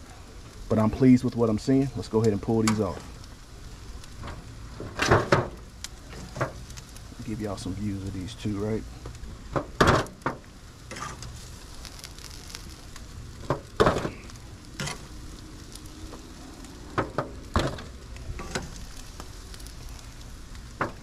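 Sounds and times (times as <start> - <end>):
meat sizzling on a grill: 0.0 - 21.0.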